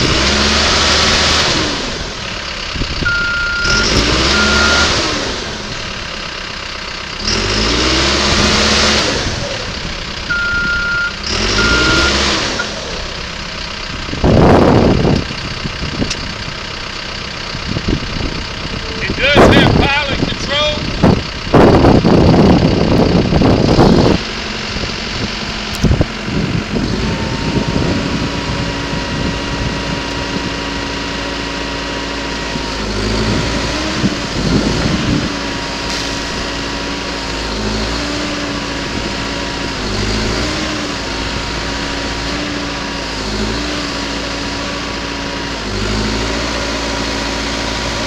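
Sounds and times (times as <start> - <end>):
diesel engine running: 0.0 - 48.0.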